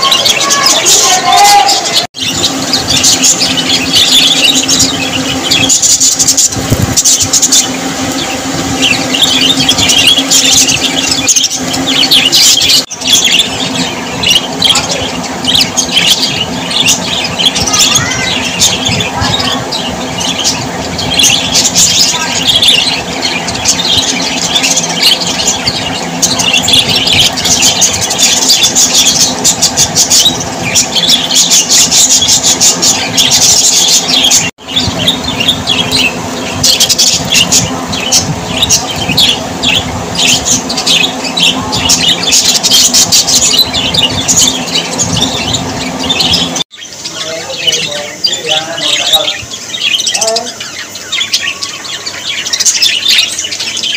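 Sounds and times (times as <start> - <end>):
low hum: 0.0 - 46.7
budgerigars chattering: 0.0 - 53.9.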